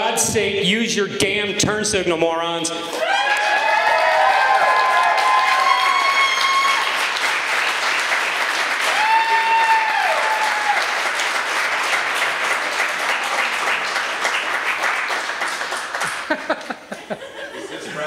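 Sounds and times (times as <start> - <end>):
person cheering: 2.9 - 6.9, 8.9 - 10.9
audience applauding: 2.9 - 17.0.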